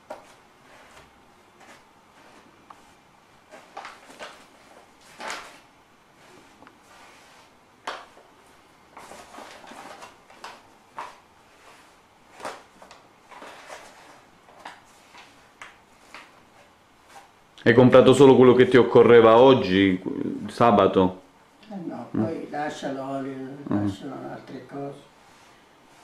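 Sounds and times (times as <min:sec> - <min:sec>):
paper bag rustling: 0:00.2 - 0:07.6, 0:08.9 - 0:17.3
soft swishes of flour spreading: 0:06.1 - 0:09.4, 0:11.4 - 0:12.3, 0:25.1 - 0:26.0.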